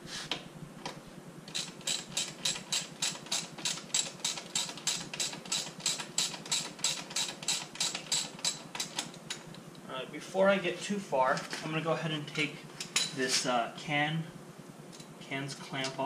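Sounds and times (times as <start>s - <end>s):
ratchet wrench clicking: 1.5s - 9.1s.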